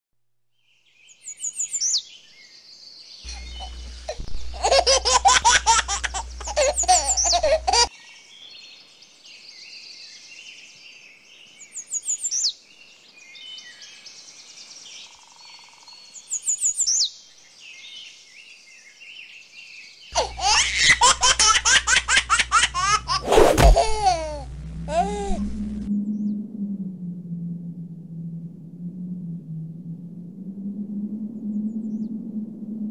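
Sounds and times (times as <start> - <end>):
birds chirping: 0.8 - 23.2
baby laughing: 3.3 - 7.9, 20.2 - 25.6.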